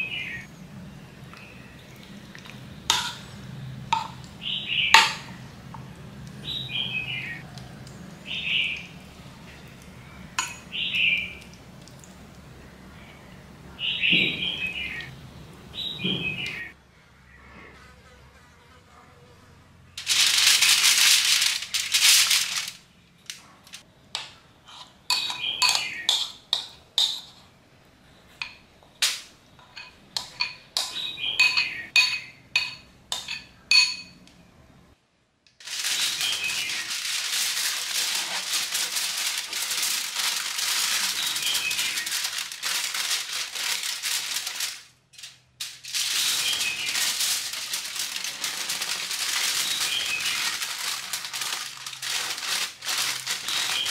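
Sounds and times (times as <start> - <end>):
aluminium foil crinkling: 20.0 - 23.8, 35.6 - 53.9.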